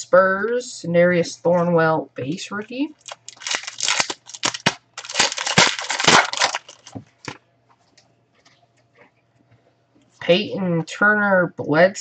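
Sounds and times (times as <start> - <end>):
card pack wrapper crinkling: 3.0 - 7.0.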